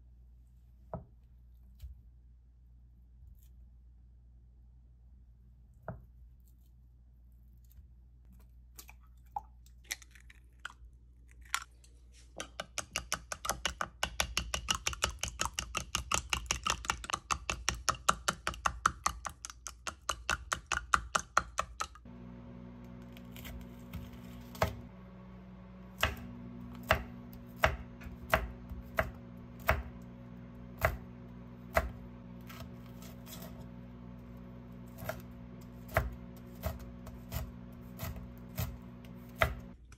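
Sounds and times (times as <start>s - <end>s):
chopsticks beating eggs in glass: 12.4s - 22.0s
steady low hum: 22.1s - 39.9s
knife chopping on wooden board: 23.1s - 24.9s, 26.0s - 39.8s.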